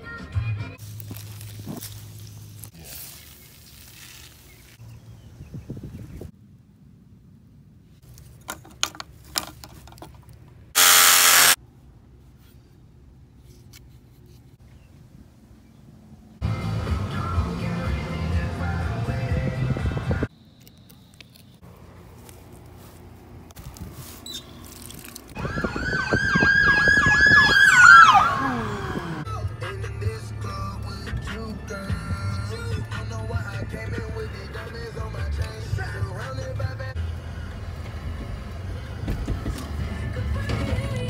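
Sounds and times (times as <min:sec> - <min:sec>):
handling clicks and knocks on pipe: 0:08.2 - 0:10.6
power tool burst: 0:10.8 - 0:11.6
emergency vehicle sirens: 0:25.4 - 0:29.3.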